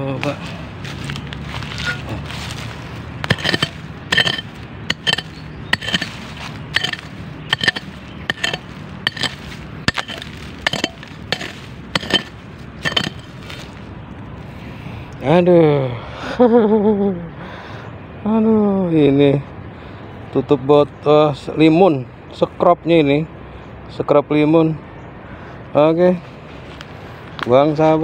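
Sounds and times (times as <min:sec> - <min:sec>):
hand hoe striking stony soil: 0:03.2 - 0:13.8.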